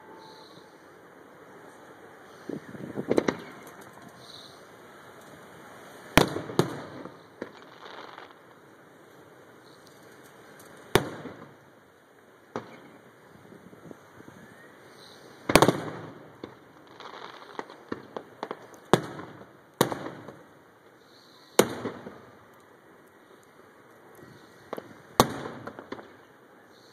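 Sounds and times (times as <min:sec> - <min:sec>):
firework booms: 0:02.6 - 0:04.1, 0:06.1 - 0:08.4, 0:10.9 - 0:11.6, 0:15.5 - 0:20.5, 0:21.6 - 0:22.3, 0:24.6 - 0:26.2
small firework pops: 0:03.0 - 0:04.5, 0:06.1 - 0:08.5, 0:09.6 - 0:11.6, 0:12.5 - 0:13.0, 0:15.5 - 0:20.5, 0:21.5 - 0:22.7, 0:23.4 - 0:26.9.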